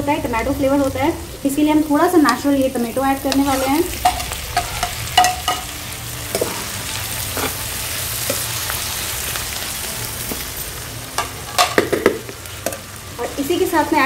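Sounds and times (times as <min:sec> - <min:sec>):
vegetables sizzling in pan: 0:00.0 - 0:14.0
spatula clinking and scraping pan: 0:03.2 - 0:08.5.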